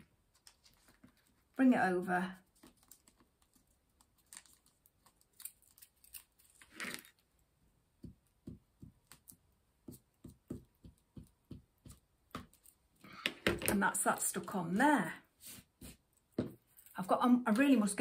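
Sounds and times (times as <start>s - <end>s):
paper rustling: 0.2s - 1.6s, 2.4s - 7.2s.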